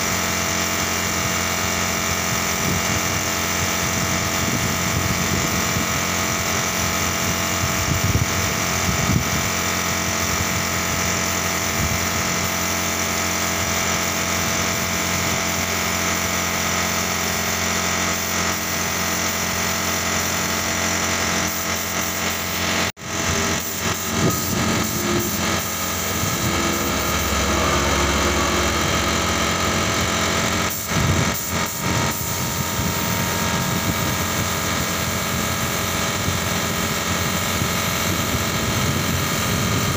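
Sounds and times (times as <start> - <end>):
air compressor humming: 0.0 - 39.9
spray gun hissing: 21.4 - 28.8, 30.7 - 36.6.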